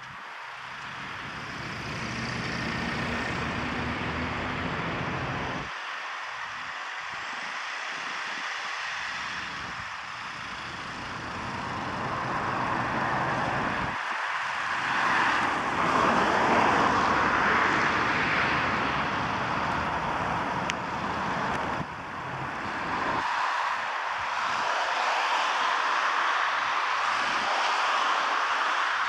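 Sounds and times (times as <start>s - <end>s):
van engine driving away: 0.6s - 5.7s, 9.3s - 14.0s.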